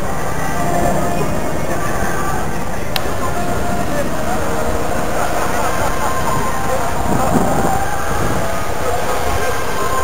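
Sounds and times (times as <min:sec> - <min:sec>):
dense steady background noise: 0:00.0 - 0:10.0
music playing: 0:00.0 - 0:10.0.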